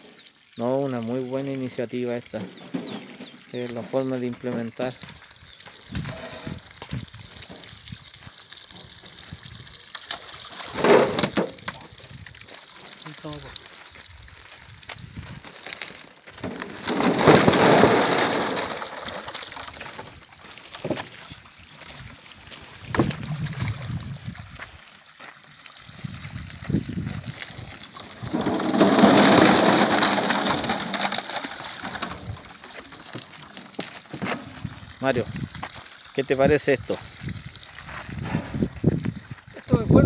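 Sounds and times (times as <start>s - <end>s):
balls splashing into water: 5.5s - 13.7s, 22.3s - 24.5s, 26.9s - 36.2s
plastic balls clattering down liner: 28.1s - 32.4s.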